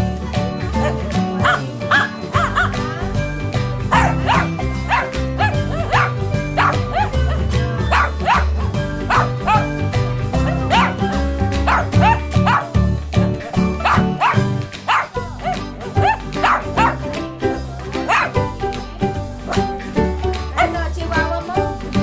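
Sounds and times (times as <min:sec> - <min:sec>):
background music: 0:00.0 - 0:22.0
dog barking high yaps: 0:01.4 - 0:02.8, 0:03.9 - 0:08.5, 0:09.1 - 0:09.7, 0:10.5 - 0:11.0, 0:11.7 - 0:12.7, 0:13.8 - 0:17.0, 0:18.1 - 0:18.4.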